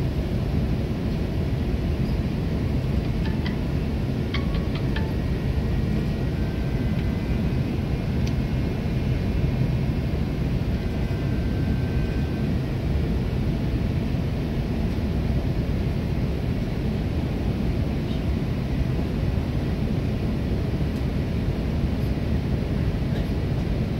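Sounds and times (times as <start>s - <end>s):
cockpit airflow and engine rumble: 0.0s - 23.9s.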